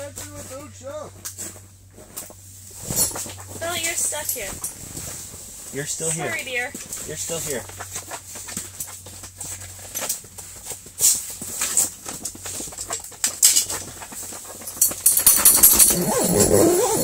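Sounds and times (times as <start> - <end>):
rustling and light knocks: 0.0 - 15.8
clothing brushing: 2.6 - 8.5.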